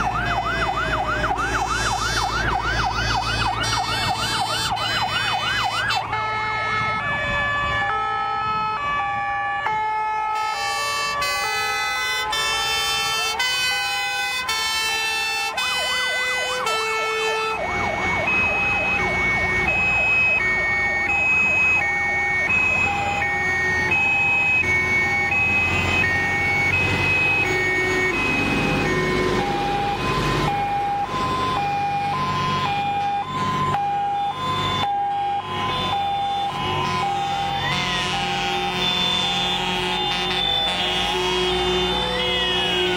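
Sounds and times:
fire engine sirens: 0:00.0 - 0:42.9
truck engines rumbling: 0:00.0 - 0:42.9.

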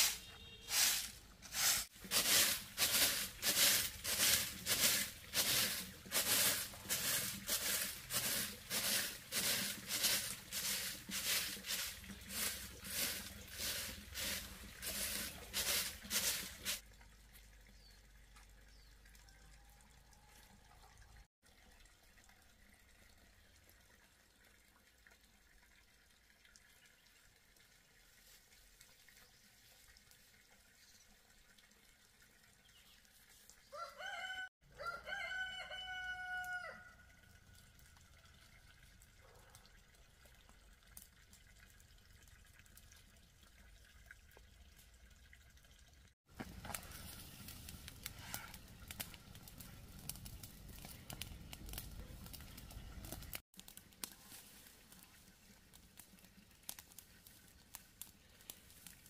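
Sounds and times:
rooster crowing: 0:33.7 - 0:37.0.

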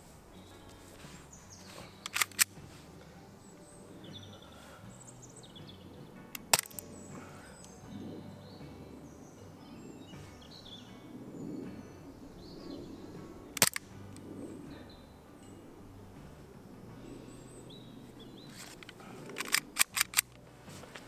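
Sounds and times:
bird chirps: 0:03.3 - 0:13.5
airsoft pistol firing: 0:06.4 - 0:06.9, 0:13.6 - 0:13.8.

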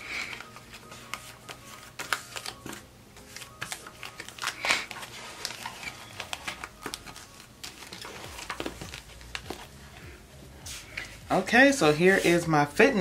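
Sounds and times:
paper and sticker sheets rustling: 0:00.0 - 0:13.0.

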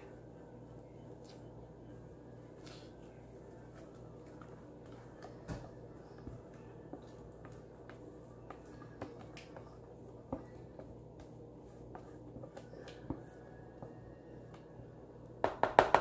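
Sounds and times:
faint steady hum: 0:00.0 - 0:16.0.

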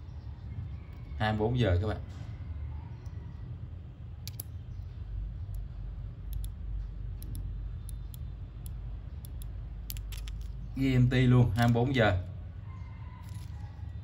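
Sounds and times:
low steady hum: 0:02.0 - 0:14.0
wristwatch clicks: 0:04.2 - 0:10.8, 0:11.5 - 0:12.0.

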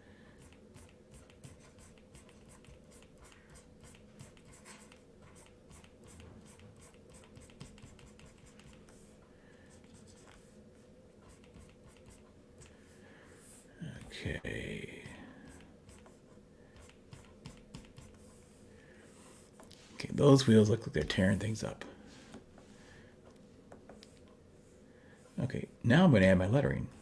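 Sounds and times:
stylus scratching on graphics tablet: 0:00.4 - 0:12.7, 0:13.3 - 0:21.8.

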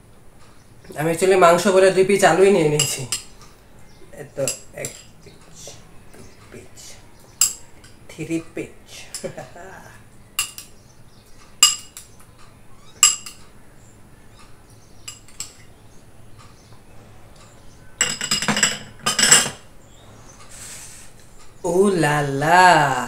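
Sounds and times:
metal spoon clinking on glass bowls: 0:02.7 - 0:03.5, 0:04.4 - 0:05.2, 0:07.4 - 0:08.0, 0:10.4 - 0:10.7, 0:11.6 - 0:12.1, 0:13.0 - 0:13.5, 0:15.0 - 0:15.7, 0:18.0 - 0:19.6.

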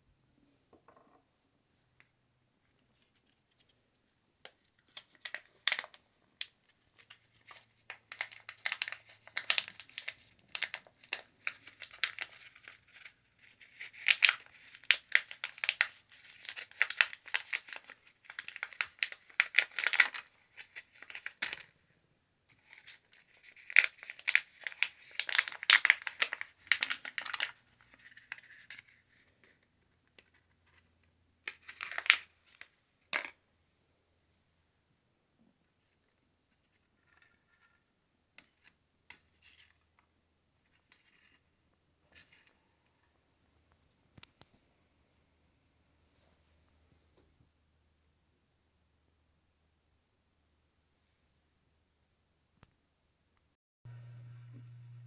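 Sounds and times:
plastic bag crinkling: 0:04.8 - 0:21.7, 0:22.5 - 0:29.3.

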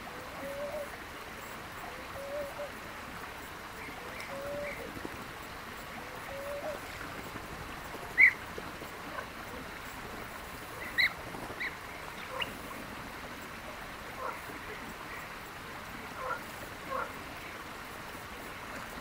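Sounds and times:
background hiss: 0:00.0 - 0:19.0
bird calls: 0:01.8 - 0:02.8, 0:03.7 - 0:05.0, 0:05.9 - 0:09.8, 0:10.6 - 0:12.8, 0:16.2 - 0:17.5.

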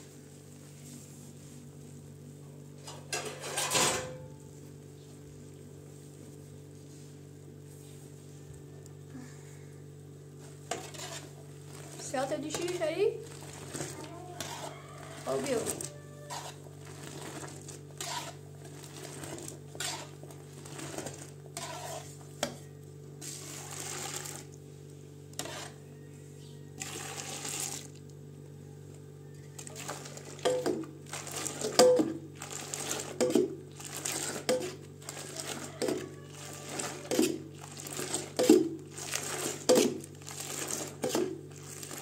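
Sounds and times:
milk splashing pours: 0:26.8 - 0:28.0.

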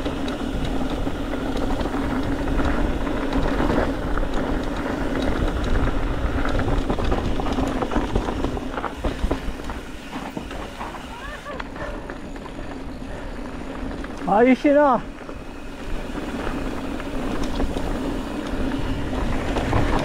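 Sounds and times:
bike rattling: 0:00.0 - 0:20.0
bike tyres rumbling on gravel: 0:00.0 - 0:20.0
wind on microphone: 0:15.5 - 0:20.0.

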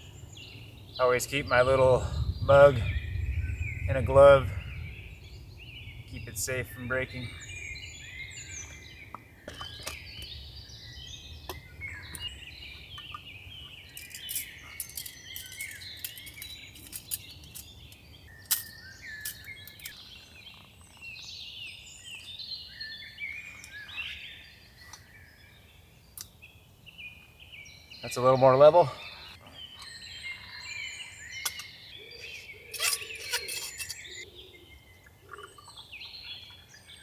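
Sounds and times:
wild birds chirping: 0:00.0 - 0:37.0.

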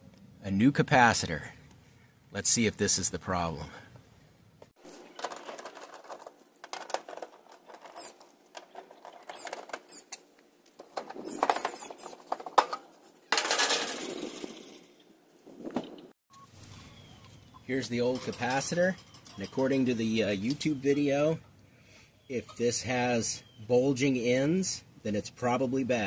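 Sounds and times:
metal panel scraping rattle: 0:04.8 - 0:10.1, 0:10.8 - 0:15.0
screws clicking and squeaking: 0:07.2 - 0:10.2, 0:11.2 - 0:12.3.

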